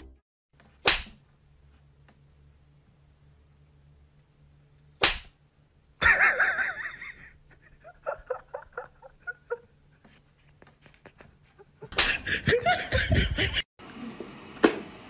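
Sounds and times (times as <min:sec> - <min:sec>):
whip crack sound effect: 0:00.8 - 0:01.2, 0:05.0 - 0:05.4
giggle-like voice syllables: 0:06.0 - 0:09.8.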